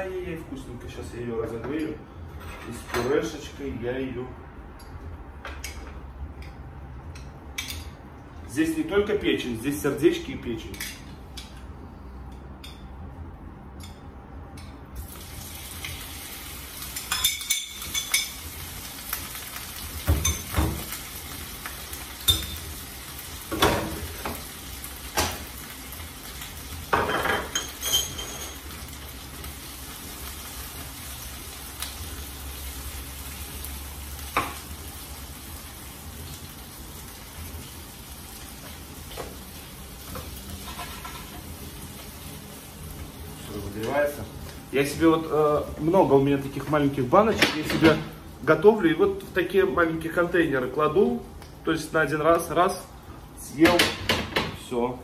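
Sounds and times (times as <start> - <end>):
meat sizzling in a frying pan: 15.0 - 50.0
utensils clinking and scraping: 27.1 - 28.7, 40.5 - 41.5.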